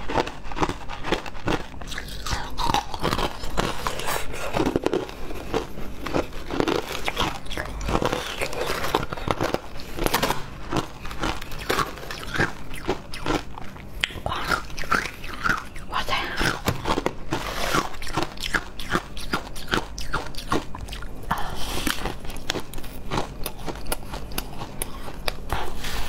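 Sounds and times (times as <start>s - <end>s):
shaved ice crunching: 0.1s - 13.4s.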